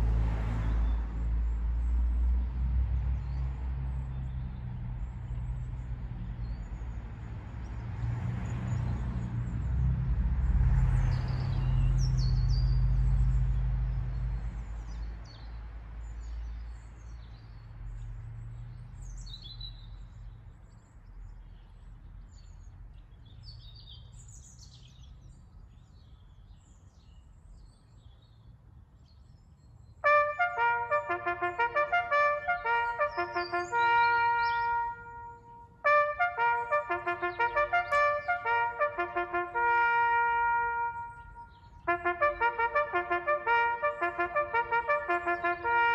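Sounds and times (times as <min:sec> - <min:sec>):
trumpet bugle call: 0:30.0 - 0:45.9
bird chirps: 0:32.9 - 0:35.6.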